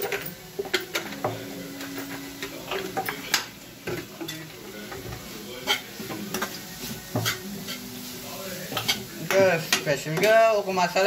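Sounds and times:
spoon scraping frying pan: 0:03.9 - 0:10.4.

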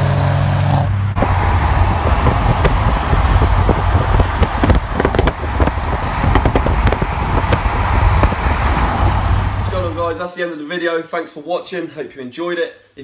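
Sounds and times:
car engine running at speed: 0:00.0 - 0:10.2
road and wind noise: 0:00.0 - 0:10.2
exhaust pops and crackles: 0:00.7 - 0:10.2.

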